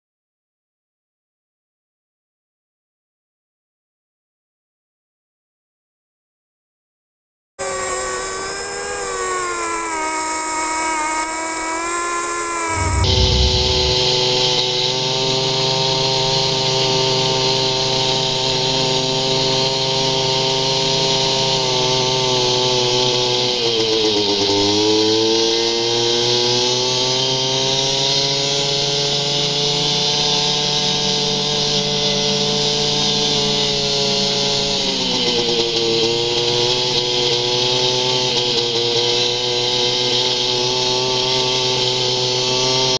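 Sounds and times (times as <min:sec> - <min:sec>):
snowmobile engine whining: 0:07.6 - 0:14.4.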